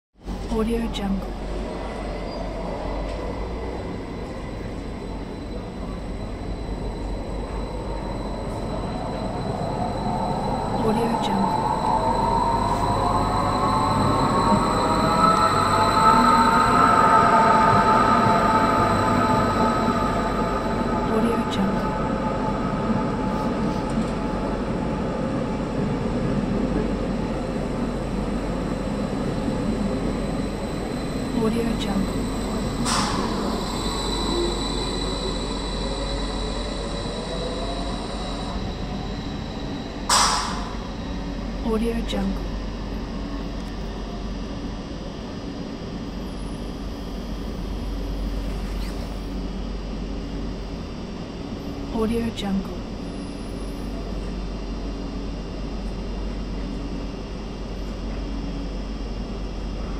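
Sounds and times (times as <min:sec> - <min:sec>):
train rumbling on rails: 0:00.2 - 0:59.9
rising tone: 0:06.5 - 0:26.4.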